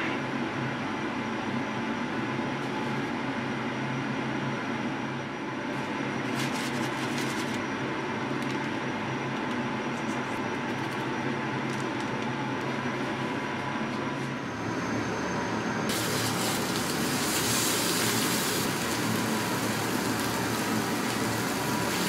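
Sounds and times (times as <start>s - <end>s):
machine hum and hiss: 0.0s - 22.0s
spatula scraping on baking paper: 6.3s - 7.6s.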